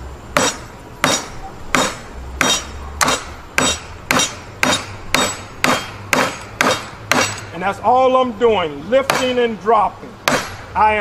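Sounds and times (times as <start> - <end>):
hammer driving nail into wood: 0.4 - 7.5, 9.1 - 9.4, 10.3 - 10.6.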